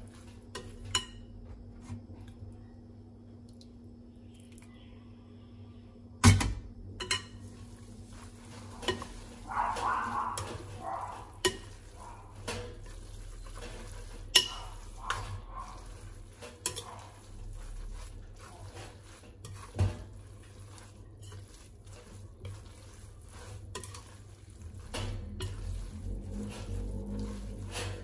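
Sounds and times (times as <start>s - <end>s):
spoon mixing noodles: 0.0s - 1.3s, 7.0s - 28.0s.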